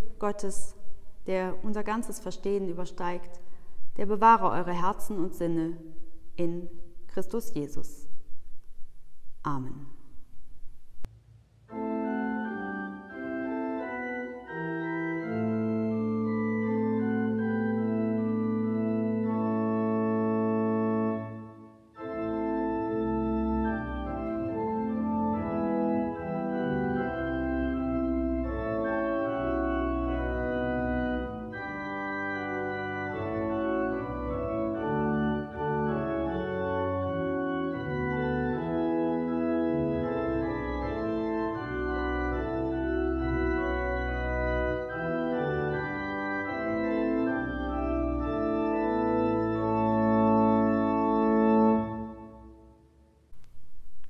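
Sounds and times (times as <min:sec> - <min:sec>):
pipe organ playing a hymn: 0:11.7 - 0:52.7.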